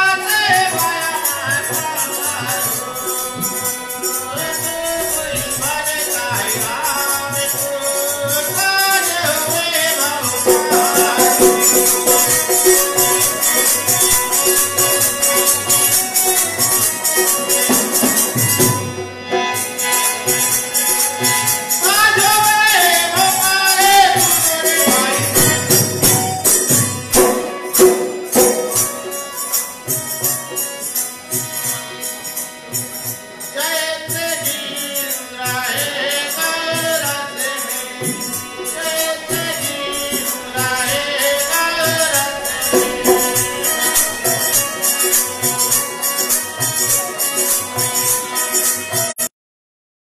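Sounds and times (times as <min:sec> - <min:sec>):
man singing devotional song: 0:00.0 - 0:20.4, 0:21.2 - 0:30.9, 0:32.5 - 0:49.2
harmonium: 0:00.0 - 0:49.3
metal hand percussion jingling: 0:00.1 - 0:18.8, 0:19.6 - 0:49.2
hand drum beat: 0:08.3 - 0:19.5, 0:21.2 - 0:30.5, 0:38.0 - 0:48.2.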